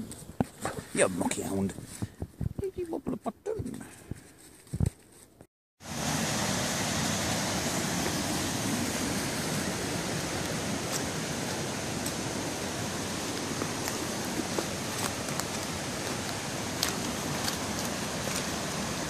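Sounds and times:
stream rushing over rocks: 5.8 - 19.0.

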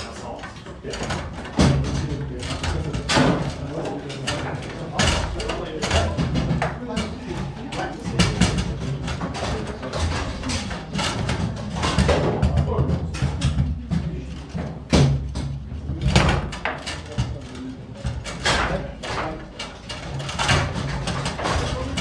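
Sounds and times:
background chatter: 0.0 - 22.0
foosball knocks and clacks: 0.0 - 22.0
rods clattering: 0.0 - 22.0.

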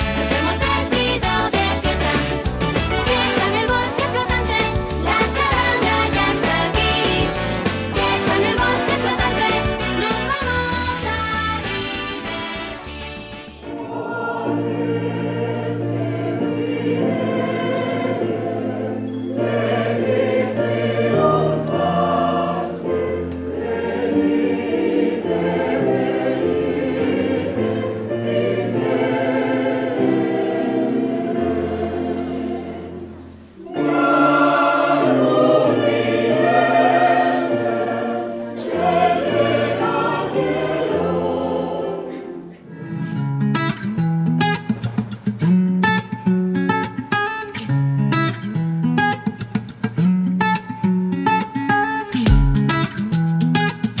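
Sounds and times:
choir singing: 0.0 - 12.9, 13.5 - 43.2.

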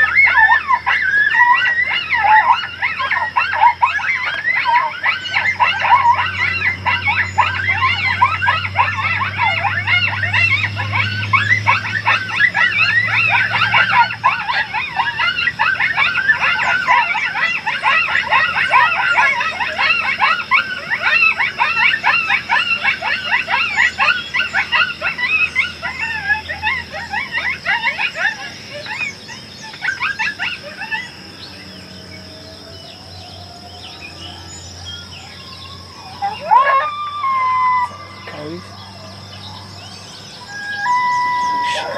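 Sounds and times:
coyotes yipping and howling: 0.0 - 41.9.

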